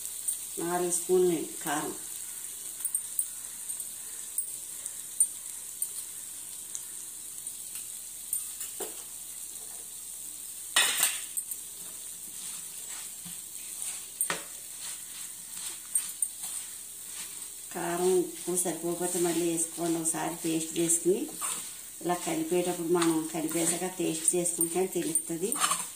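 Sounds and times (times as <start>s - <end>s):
faint steady hiss: 0.0s - 25.9s
spoon scraping in a pan: 10.8s - 25.9s.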